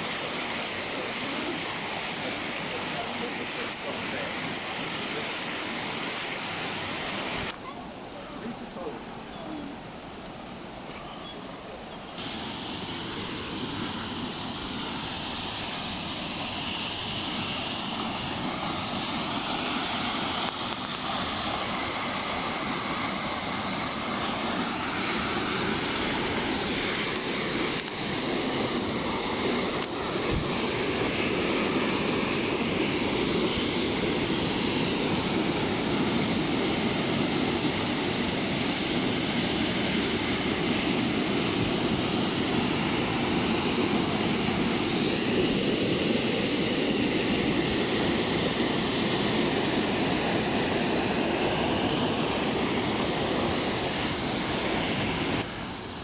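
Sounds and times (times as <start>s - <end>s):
waterfall roaring: 0.0s - 56.0s.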